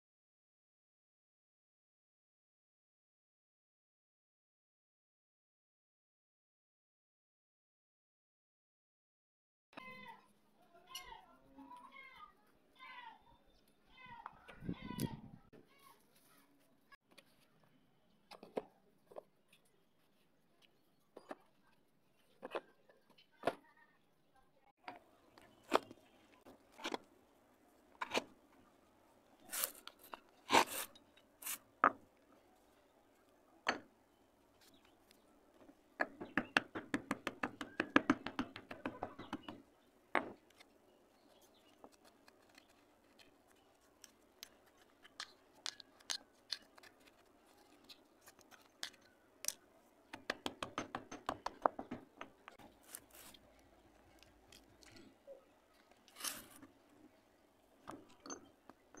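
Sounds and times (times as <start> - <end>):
dry clay crumbling by hand: 24.9 - 59.0.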